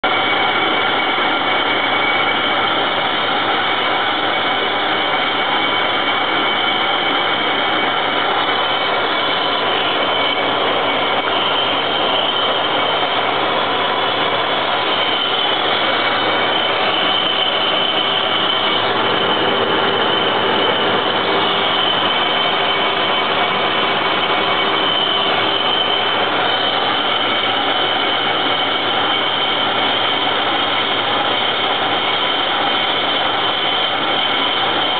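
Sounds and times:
lathe cutting metal: 0:00.0 - 0:34.9
high-pitched gear tones: 0:05.2 - 0:31.3.

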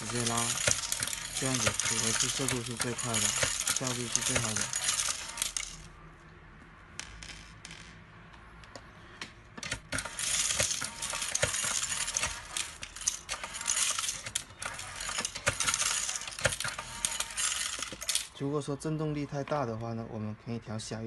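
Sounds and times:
metallic rattle of screws: 0:00.0 - 0:05.9, 0:09.6 - 0:18.4.

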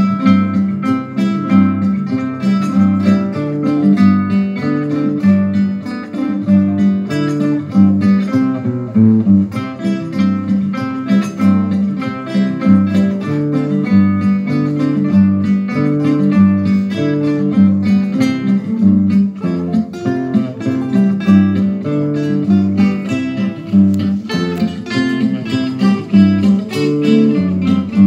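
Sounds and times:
acoustic guitars playing: 0:00.0 - 0:28.0.

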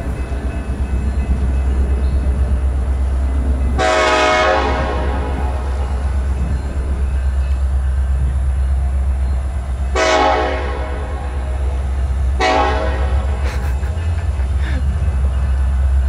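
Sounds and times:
locomotive horn blasts: 0:03.8 - 0:05.9, 0:09.9 - 0:13.4
diesel engine rumble: 0:10.9 - 0:16.0.

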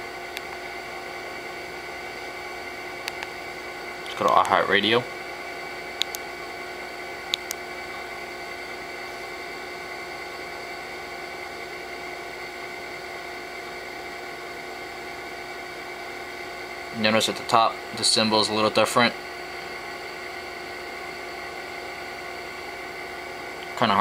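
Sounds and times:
steady background hum: 0:00.0 - 0:24.0.

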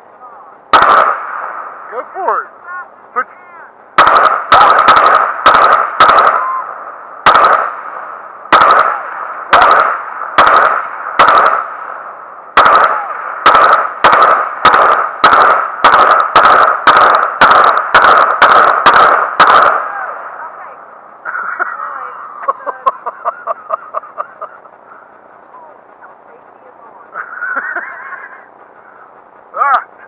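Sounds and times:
rifle shots echoing: 0:00.7 - 0:02.4, 0:04.0 - 0:20.8.

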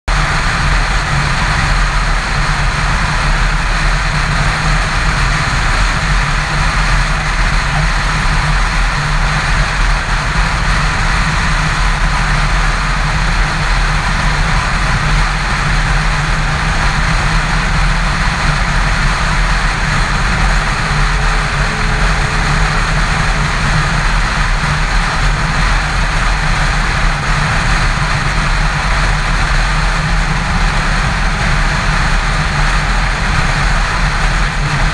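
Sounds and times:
motorcycle engine drone: 0:00.1 - 0:34.9
wind rushing: 0:15.4 - 0:34.2.

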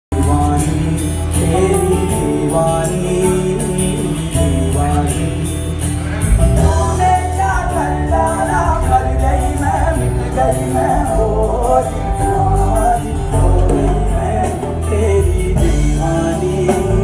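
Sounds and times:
music with singing: 0:00.1 - 0:17.0
strong bass line: 0:00.1 - 0:17.0.

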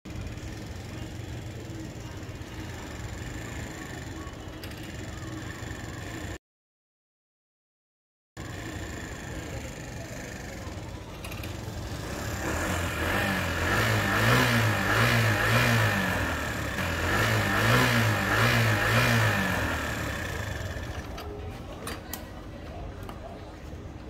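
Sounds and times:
scooter engine revving: 0:11.4 - 0:21.2.

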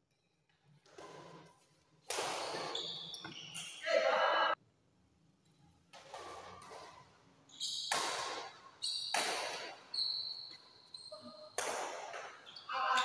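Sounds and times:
rackets hitting a shuttlecock: 0:02.0 - 0:03.8, 0:05.9 - 0:07.0, 0:07.6 - 0:09.9, 0:11.3 - 0:12.5
thin high squeak: 0:09.9 - 0:11.6.

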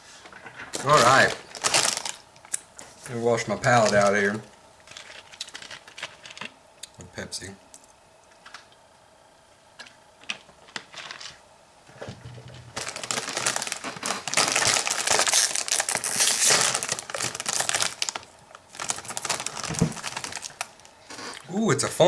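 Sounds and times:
chip bag crinkling: 0:00.2 - 0:06.6, 0:10.2 - 0:11.4, 0:12.7 - 0:21.4.

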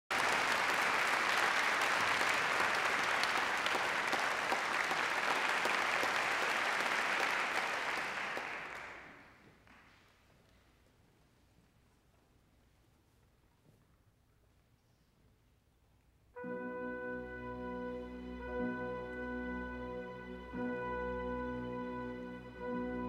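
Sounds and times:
audience applauding: 0:00.1 - 0:10.0.

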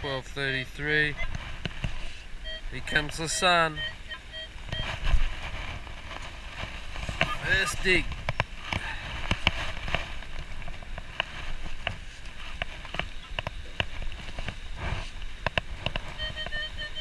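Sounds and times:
wind rumble on microphone: 0:00.0 - 0:17.0
metal detector pulsing beep: 0:02.4 - 0:05.0, 0:16.1 - 0:17.0.

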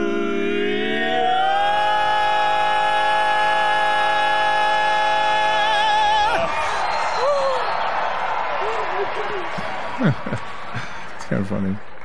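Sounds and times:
male quartet singing a cappella: 0:00.0 - 0:06.4.

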